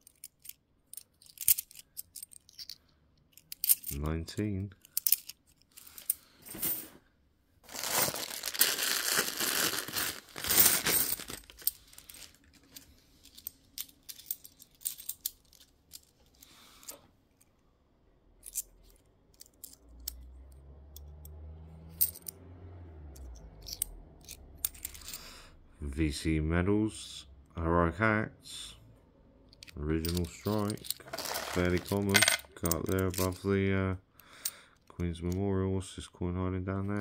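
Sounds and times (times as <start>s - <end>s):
coins clicking: 0.0s - 4.0s, 4.8s - 6.8s, 9.8s - 17.0s, 18.4s - 20.2s, 23.6s - 25.3s, 29.5s - 33.4s
plastic bag crinkling and tearing: 7.6s - 12.4s.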